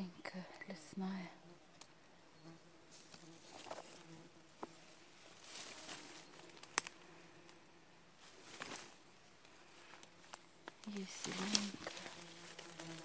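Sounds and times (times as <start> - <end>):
insects buzzing: 0.0 - 13.0
leaves and grass rustling: 2.7 - 13.0.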